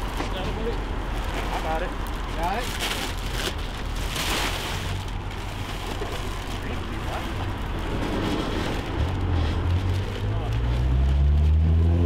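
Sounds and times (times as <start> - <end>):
plastic wrapping crinkling: 0.0 - 11.5
road traffic: 0.0 - 12.0.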